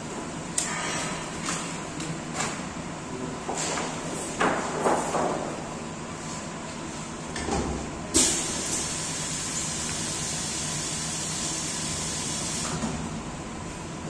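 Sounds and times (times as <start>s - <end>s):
low machine hum: 0.0s - 14.0s
air hissing: 8.2s - 12.8s.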